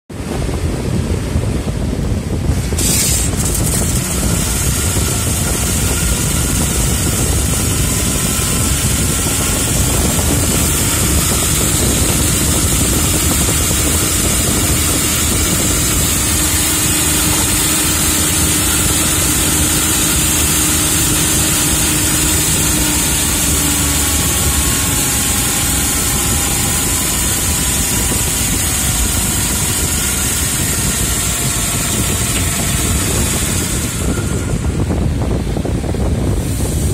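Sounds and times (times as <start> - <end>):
lathe machine hum: 2.3 - 36.9.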